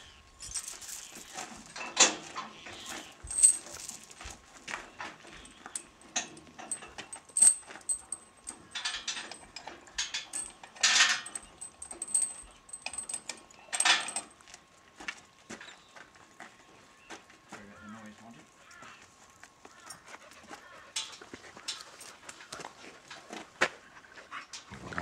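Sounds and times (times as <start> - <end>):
metal harness fittings jingling: 0.4 - 4.2, 5.3 - 14.3.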